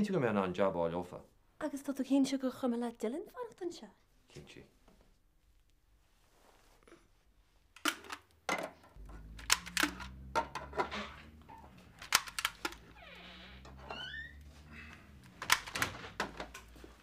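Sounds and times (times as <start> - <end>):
door squeaking: 9.0 - 16.6
glass door clicks and knocks: 9.5 - 14.3.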